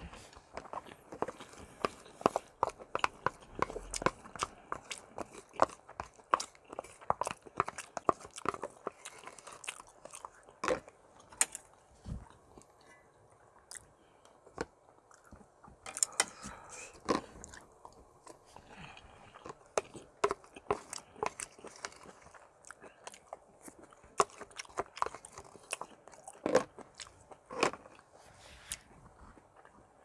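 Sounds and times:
chewing and wet mouth noises: 0.1s - 30.0s.

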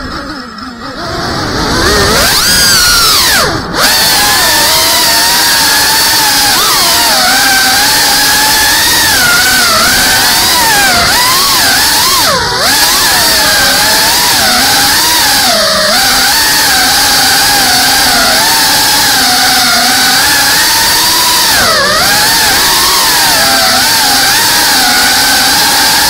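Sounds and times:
drone motors whining: 0.0s - 26.0s.

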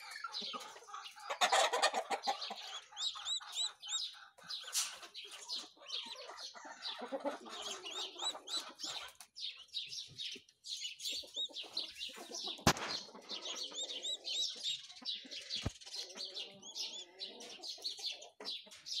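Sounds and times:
chicks peeping: 0.0s - 19.0s
sharp click: 12.7s - 13.1s.

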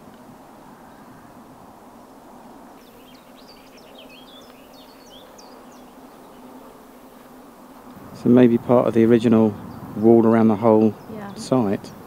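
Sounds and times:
outdoor background hiss: 0.0s - 12.0s
songbird chirping: 2.7s - 12.0s.

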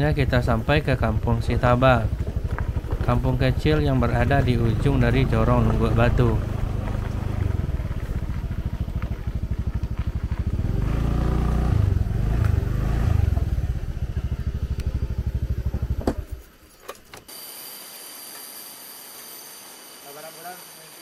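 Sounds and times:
small motorcycle engine idling: 0.0s - 16.7s.

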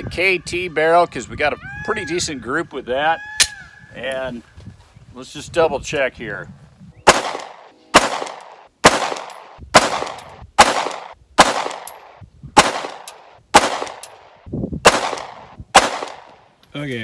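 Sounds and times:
pistol shots with echo: 7.1s - 14.2s, 14.8s - 16.3s.

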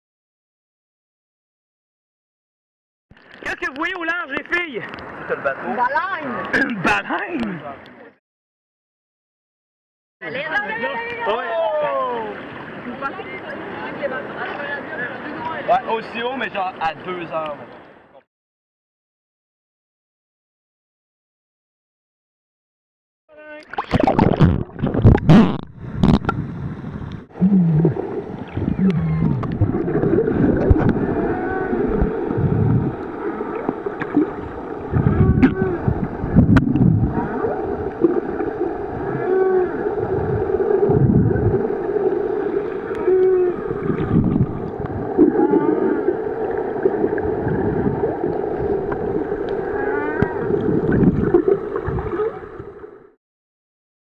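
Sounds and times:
whale song underwater: 27.3s - 53.1s.

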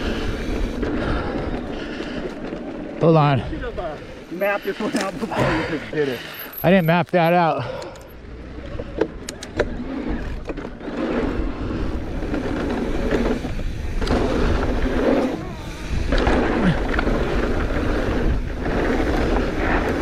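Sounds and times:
bike tyre and wind noise: 0.0s - 20.0s
sharp clicks from bike: 6.9s - 11.2s.

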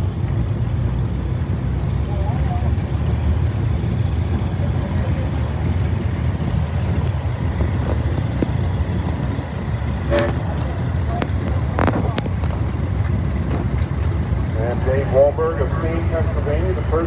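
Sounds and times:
tractor engine rumble: 0.0s - 17.0s
horn toot: 10.0s - 10.7s.

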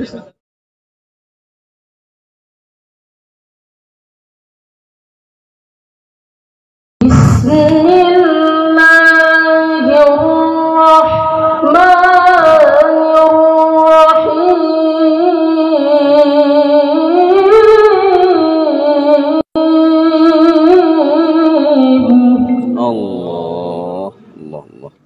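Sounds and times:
boy reciting melodically into microphone: 7.4s - 25.0s.

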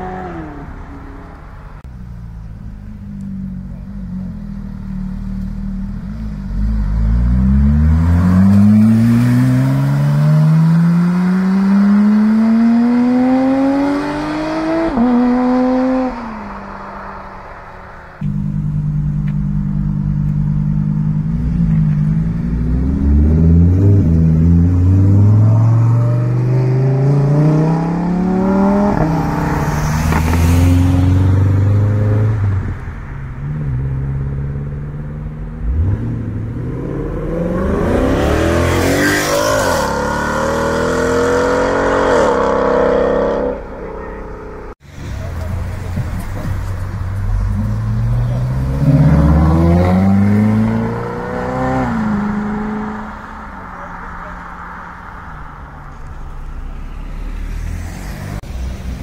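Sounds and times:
sports car accelerating hard: 2.8s - 44.8s, 45.4s - 55.0s
sports car engine revving through gears: 6.1s - 16.3s, 18.2s - 32.4s, 33.9s - 44.7s, 47.5s - 53.2s.

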